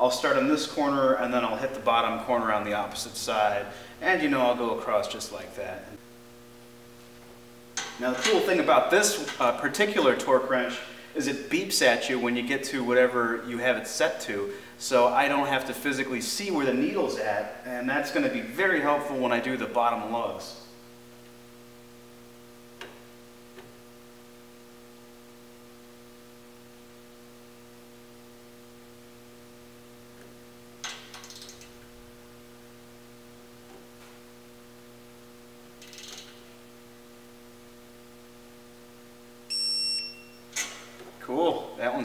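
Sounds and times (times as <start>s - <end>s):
low electrical hum: 0.0s - 42.0s
wrench clicking and rustling: 30.8s - 31.8s, 35.8s - 36.4s
torque wrench beep: 39.5s - 40.6s.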